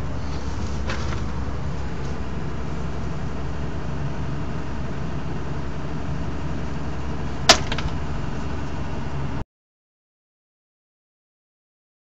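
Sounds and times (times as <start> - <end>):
machine droning: 0.0 - 9.4.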